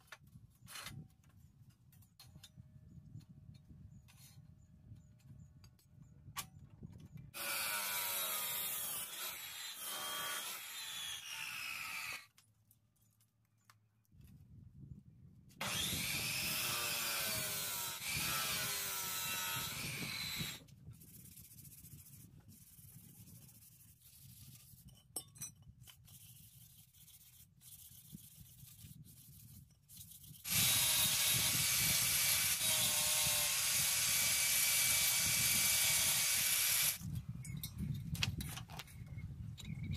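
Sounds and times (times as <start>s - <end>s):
angle grinder on steel: 7.4s - 12.2s, 15.6s - 20.6s, 30.5s - 37.0s
chop saw grinding steel: 7.4s - 12.3s, 15.6s - 20.6s, 30.4s - 37.0s.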